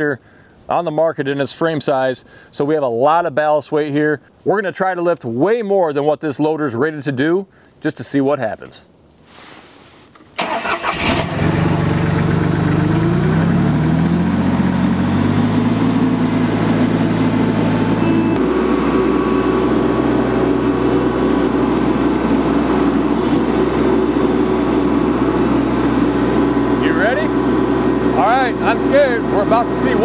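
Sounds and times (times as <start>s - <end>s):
tractor engine starting and running: 10.4s - 30.0s.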